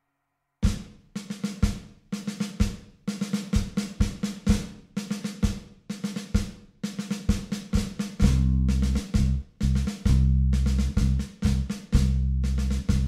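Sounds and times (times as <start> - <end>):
snare drum runs: 0.6 - 13.0
electronic kick drum: 7.8 - 9.4.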